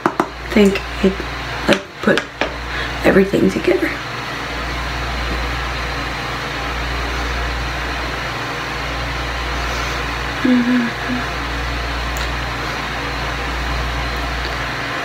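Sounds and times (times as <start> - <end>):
low rumble with hiss: 0.2 - 15.0
person humming: 10.4 - 11.4.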